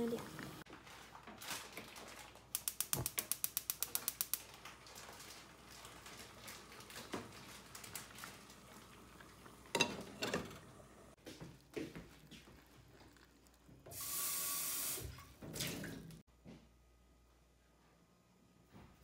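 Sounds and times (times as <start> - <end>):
gas stove igniter clicking: 2.5 - 4.4.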